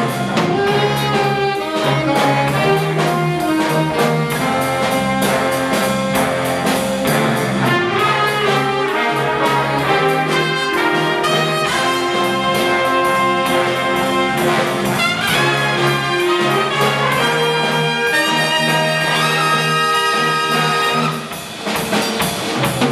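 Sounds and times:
saxophones: 0:00.0 - 0:21.4
brass section chords: 0:00.0 - 0:21.8
drum kit beat: 0:00.0 - 0:22.9
piano: 0:00.0 - 0:22.9.

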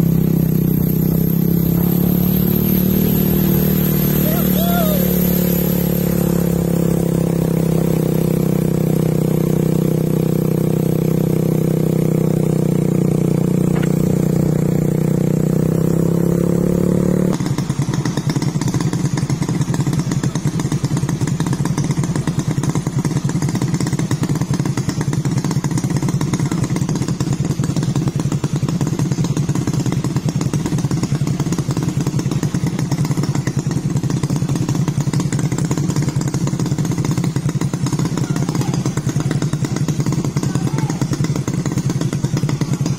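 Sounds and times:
diesel engine humming: 0:00.0 - 0:17.4
engine idling with rapid clattering: 0:00.0 - 0:42.9.

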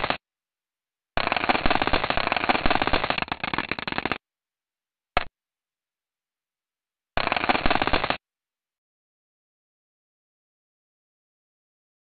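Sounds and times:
dense rapid crackling: 0:01.2 - 0:04.2, 0:07.2 - 0:08.2.

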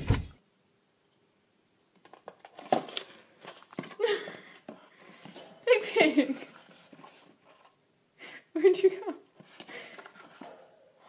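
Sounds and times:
cardboard box scraping on tile: 0:06.3 - 0:07.8, 0:09.4 - 0:10.4.

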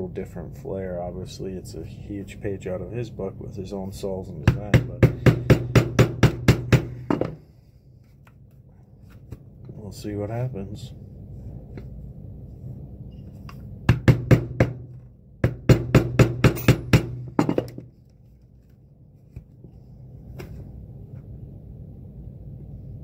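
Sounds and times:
mallet striking a stitching punch: 0:04.5 - 0:07.4, 0:13.9 - 0:17.8.

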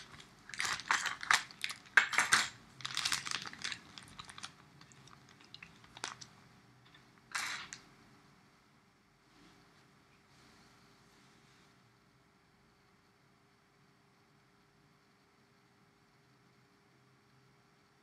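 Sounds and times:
rustling: 0:00.0 - 0:07.8.

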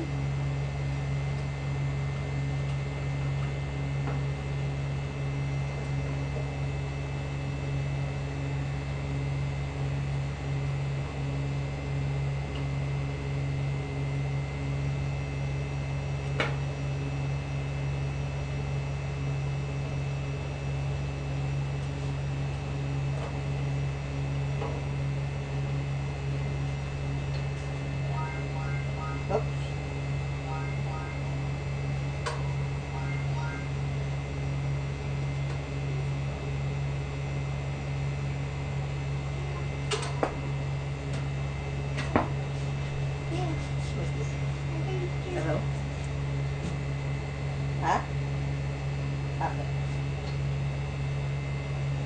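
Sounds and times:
low appliance hum: 0:00.0 - 0:52.0.

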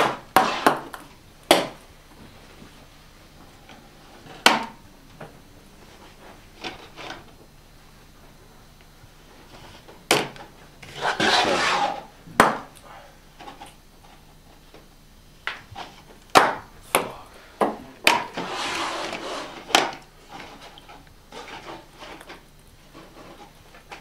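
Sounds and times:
rustling scrapes: 0:05.8 - 0:07.3, 0:10.8 - 0:12.2, 0:18.1 - 0:24.0.

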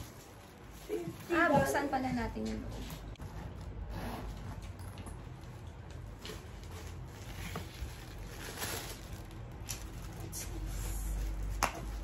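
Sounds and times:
crinkly wrapping rustling: 0:00.0 - 0:12.0
handbag zipper unzipping: 0:03.2 - 0:04.6.

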